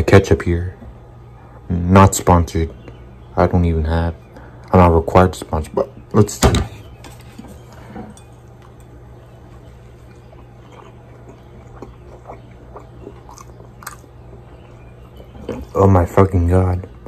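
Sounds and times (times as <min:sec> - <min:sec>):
steady low hum: 0:00.0 - 0:17.0
chewing mouth clicks: 0:10.0 - 0:14.1.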